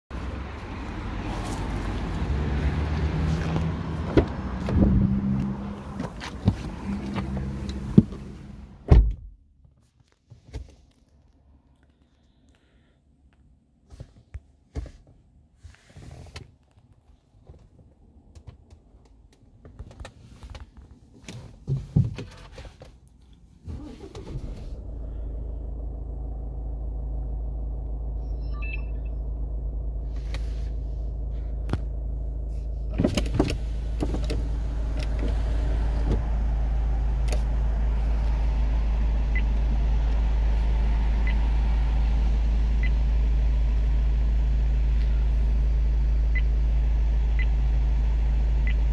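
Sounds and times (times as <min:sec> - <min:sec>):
car engine starting and idling: 0:00.1 - 0:09.1, 0:17.5 - 0:48.9
faint short beeps: 0:28.2 - 0:29.2.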